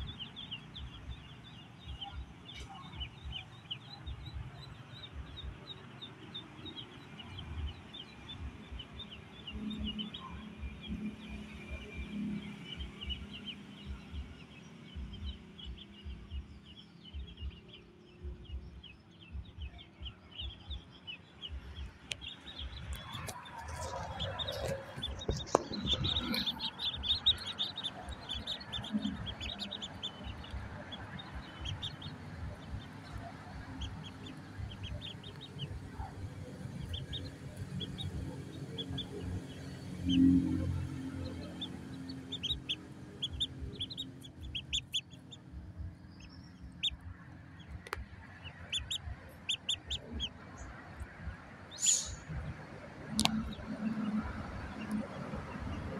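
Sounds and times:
ducklings peeping: 0.0 - 55.9
low rumble: 21.5 - 50.4.

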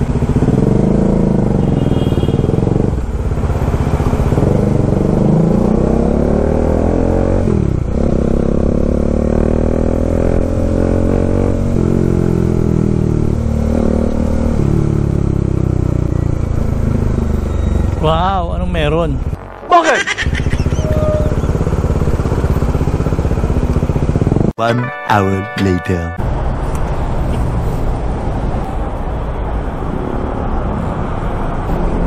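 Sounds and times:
motorcycle engine accelerating: 0.0 - 24.6.

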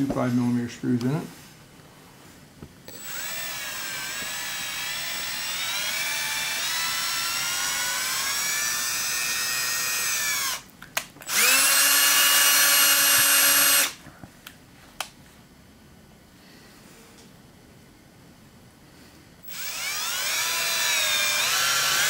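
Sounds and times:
cordless drill motor whine: 2.9 - 14.0, 19.4 - 22.0.

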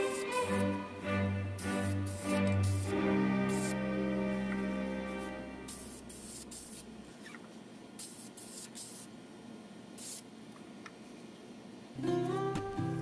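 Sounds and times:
spray paint hissing: 0.0 - 0.8, 1.6 - 3.8, 5.7 - 6.9, 8.0 - 9.1, 10.0 - 10.2.

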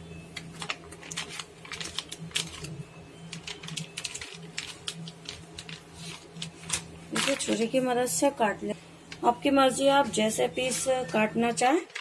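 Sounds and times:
faint steady hum: 0.0 - 12.0
tissue paper crinkling: 0.5 - 7.7.

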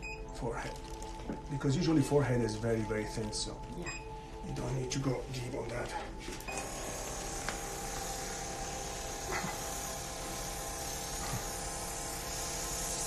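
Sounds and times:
microneedling pen whining: 2.6 - 13.0.

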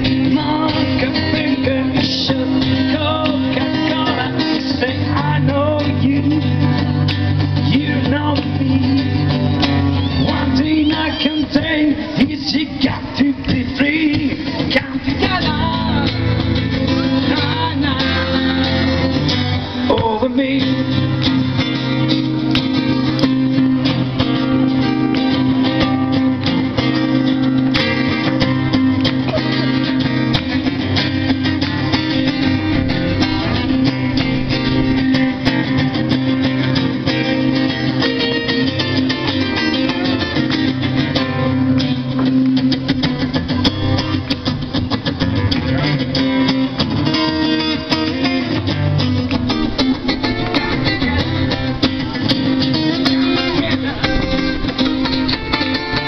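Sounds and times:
acoustic guitars playing: 0.0 - 56.0.

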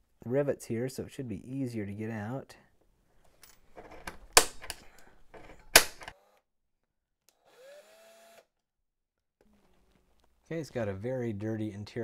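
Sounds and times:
center punch snapping: 4.3 - 4.8, 5.7 - 6.1
power drill whining: 7.3 - 8.5.

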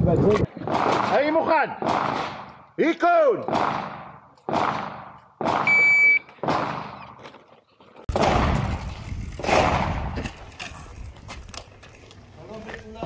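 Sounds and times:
pistol shots echoing: 0.6 - 2.7, 3.3 - 7.2
shot timer beep: 5.6 - 6.3.

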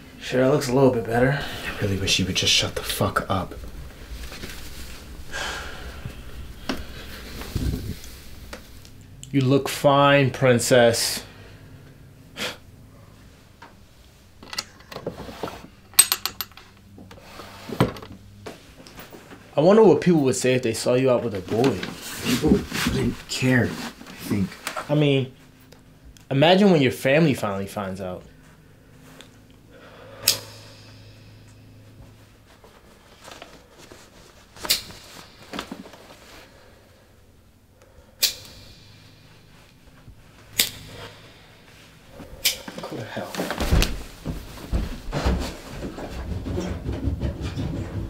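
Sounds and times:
low hum: 0.0 - 23.9, 27.1 - 42.8
soft rustling: 0.6 - 9.2, 21.3 - 26.0, 31.8 - 37.0, 39.2 - 48.0
sharp click: 38.2 - 38.9, 40.6 - 41.1
objects knocking and rubbing: 38.5 - 48.0.

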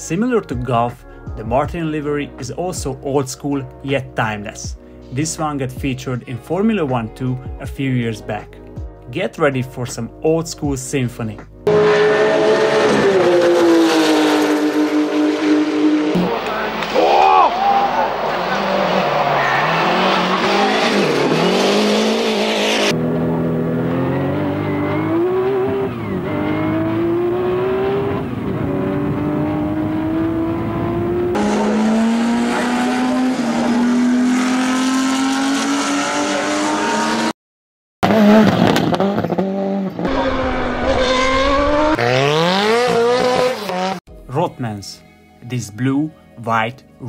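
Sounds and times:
race car engines revving: 11.6 - 37.3, 38.0 - 44.1.

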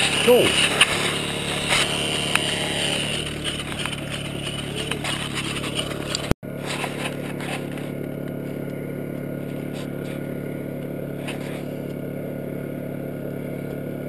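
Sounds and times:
small gasoline engine running: 0.0 - 14.0.

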